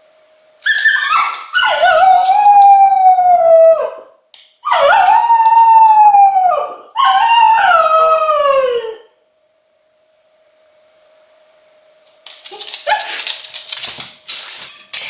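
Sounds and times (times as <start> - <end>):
dog howling: 0.6 - 9.1.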